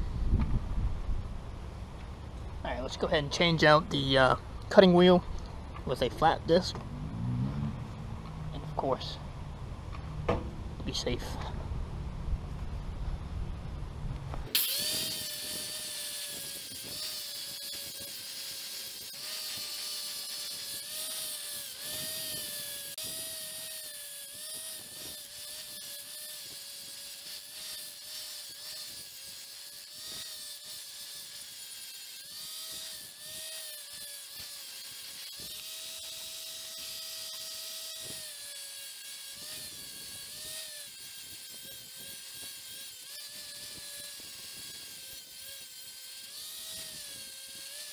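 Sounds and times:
angle grinder grinding steel: 14.5 - 47.9.

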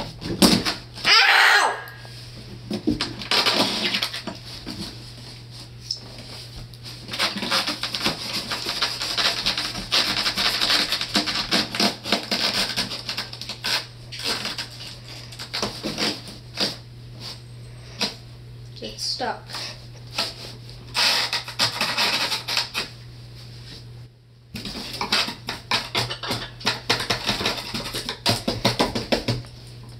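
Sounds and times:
knife scraping cardboard box: 7.1 - 17.4, 20.1 - 22.9, 24.6 - 28.8.

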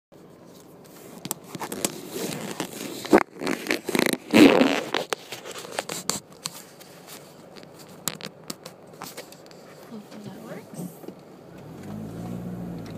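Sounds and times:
camera handling rustling and scraping: 0.4 - 9.9.

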